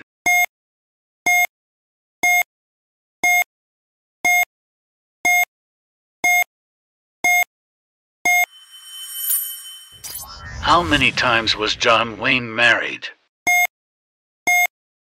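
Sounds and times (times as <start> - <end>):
short electronic beeps: 8.3 - 11.1, 13.5 - 13.7
faint swelling sound: 8.5 - 12.5.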